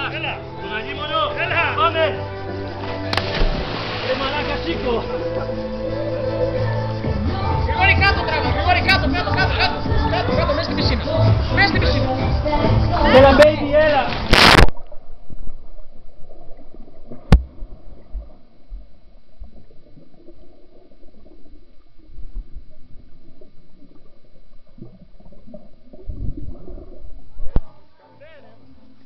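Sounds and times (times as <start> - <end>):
water churning: 2.7 - 5.6, 13.6 - 28.0
sharp click underwater: 2.8 - 4.1, 14.1 - 15.8, 17.0 - 18.8
splash into pool: 2.8 - 4.8, 14.1 - 15.0
underwater bubbling and gurgling: 14.2 - 28.0.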